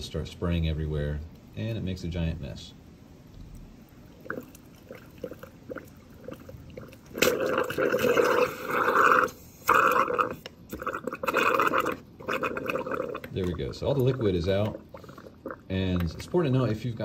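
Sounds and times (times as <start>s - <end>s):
pressure and liquid sputtering: 3.4s - 16.8s.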